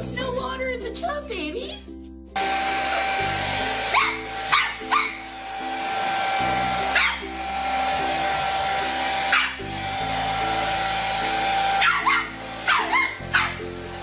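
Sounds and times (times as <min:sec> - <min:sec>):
background music: 0:00.0 - 0:14.0
dog yelping: 0:03.9 - 0:05.2, 0:06.9 - 0:07.3, 0:09.3 - 0:09.6, 0:11.8 - 0:13.6.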